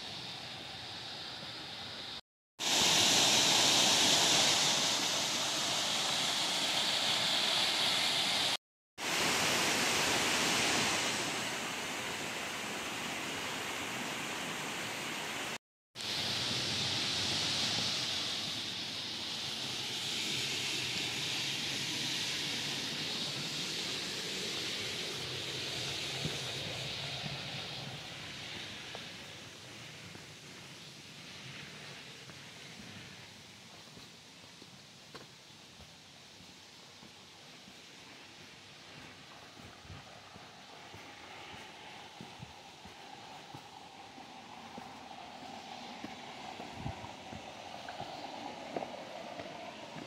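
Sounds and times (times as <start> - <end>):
stream rushing over rocks: 2.6 - 19.5, 35.7 - 50.0.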